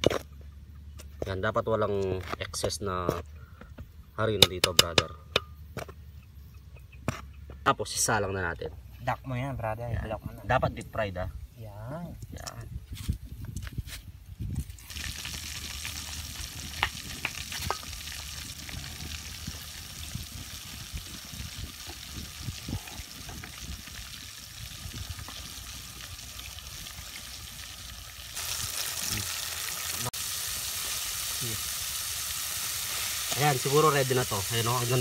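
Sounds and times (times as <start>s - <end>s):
chicken deep-frying in hot oil: 14.6s - 35.0s
oil crackling pops: 14.6s - 35.0s.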